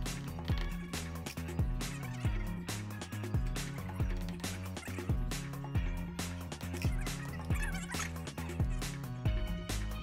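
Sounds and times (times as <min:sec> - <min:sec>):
background music with beat: 0:00.0 - 0:10.0.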